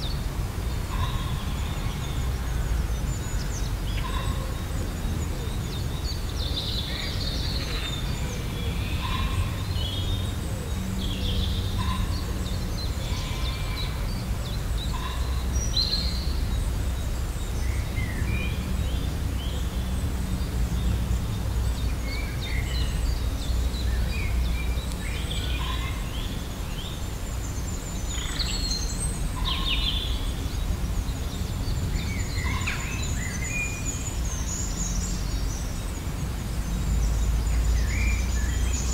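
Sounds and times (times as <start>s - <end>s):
birds singing and calling: 0.0s - 38.9s.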